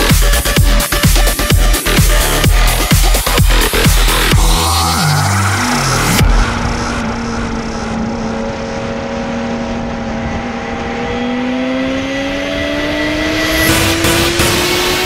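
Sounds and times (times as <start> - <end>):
motorcycle engine accelerating: 0.0 - 15.0
wind noise: 4.3 - 15.0.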